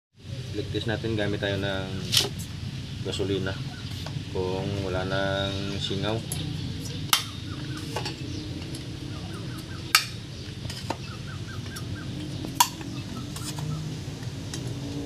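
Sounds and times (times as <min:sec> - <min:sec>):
faint bird calls: 0:02.9 - 0:14.0.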